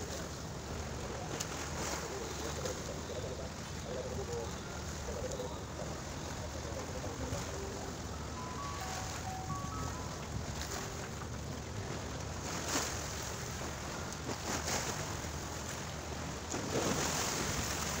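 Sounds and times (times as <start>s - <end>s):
small waves washing onto shore: 0.0s - 18.0s
short water splashes: 4.6s - 18.0s.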